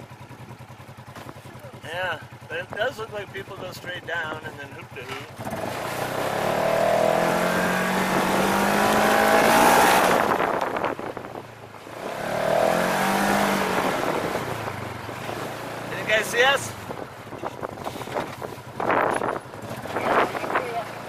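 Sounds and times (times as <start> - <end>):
utility vehicle engine revving: 4.5 - 21.0.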